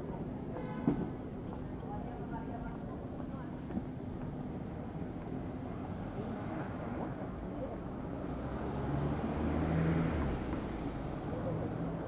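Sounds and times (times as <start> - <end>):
motor vehicle passing: 8.4 - 12.0.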